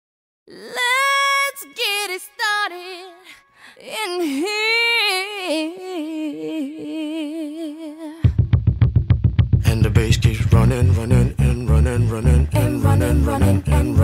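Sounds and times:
woman singing solo: 0.5 - 8.3.

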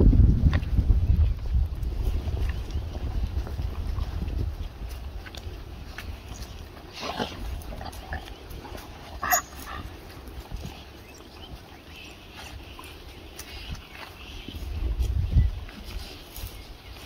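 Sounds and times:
wild dog high-pitched call: 9.1 - 10.0.

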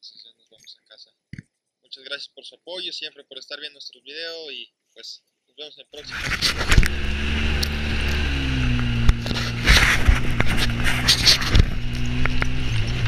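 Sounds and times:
utility vehicle engine running: 6.0 - 13.0
body and suspension rattling: 6.1 - 13.0.

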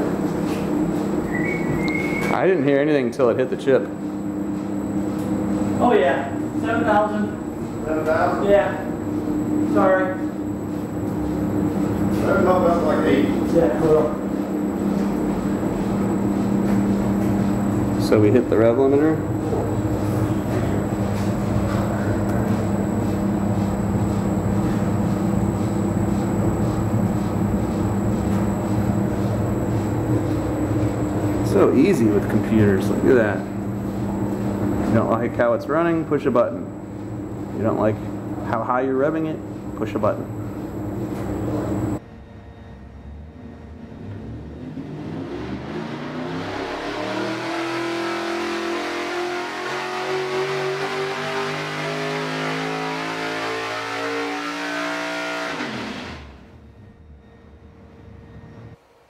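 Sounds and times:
engine running steadily: 0.0 - 57.0
steady shop noise: 0.0 - 59.0
engine revving at full throttle: 44.2 - 56.4.

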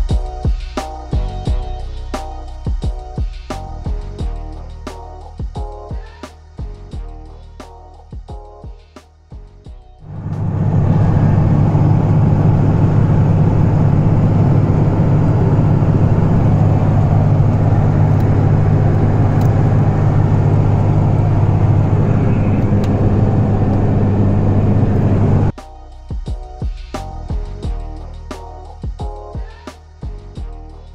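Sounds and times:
diesel engine drone: 10.0 - 25.6
road noise: 10.0 - 25.6.

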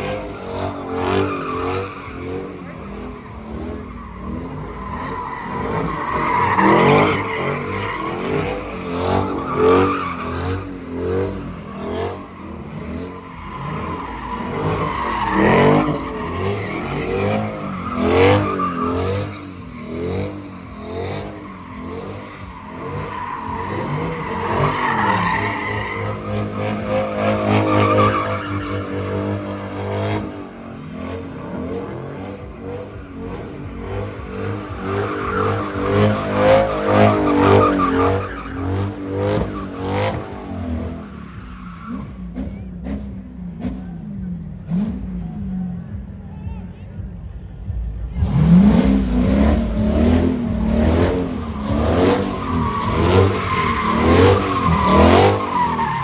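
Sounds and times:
car engines revving: 0.0 - 56.0
tyres squealing on asphalt: 0.0 - 56.0.

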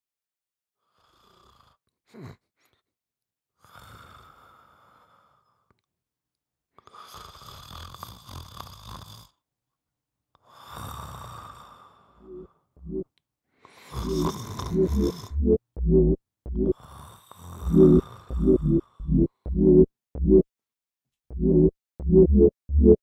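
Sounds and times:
person snoring: 13.8 - 15.4.

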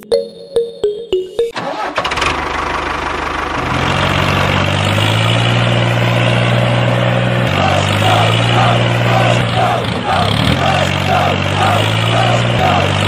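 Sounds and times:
tractor engine running: 1.6 - 13.0.

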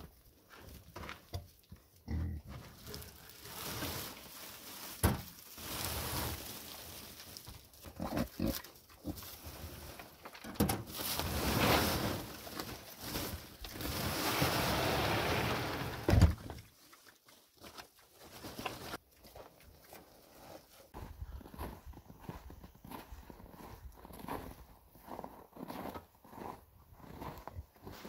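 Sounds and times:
plastic sack rustling and crackling: 2.5 - 8.0, 9.1 - 16.3.

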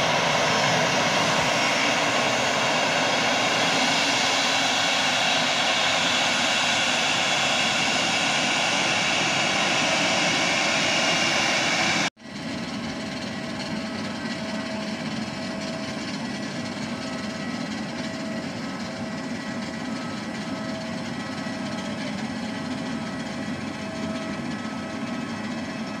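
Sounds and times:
jet engines whining: 0.0 - 26.0
steady engine hum: 0.0 - 26.0.

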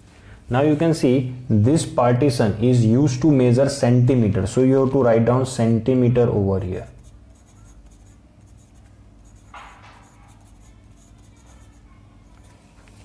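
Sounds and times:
pencil writing on paper: 7.0 - 12.6.

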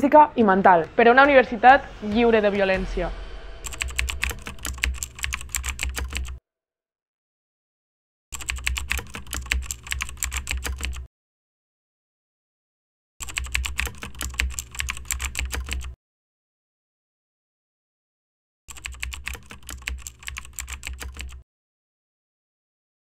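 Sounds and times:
fast typing on keyboard: 3.7 - 6.4, 8.4 - 11.1, 13.2 - 16.0, 18.7 - 21.4.

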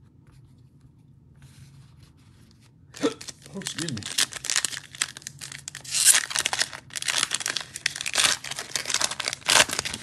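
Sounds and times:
foil wrapper crinkling and ripping: 3.2 - 10.0.

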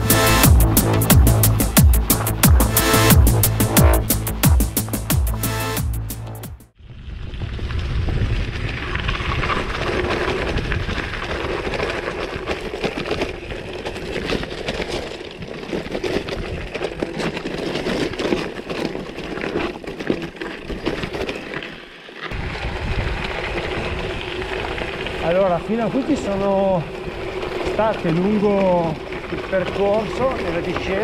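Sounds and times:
steady rushing noise: 0.0 - 6.7
bike rattling: 0.0 - 31.0
bike tyres crunching on gravel: 0.0 - 31.0.

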